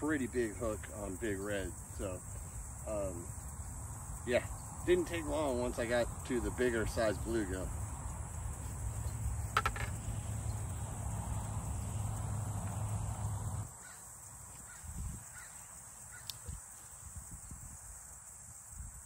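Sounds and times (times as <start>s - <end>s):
low outdoor rumble: 0.4s - 13.7s.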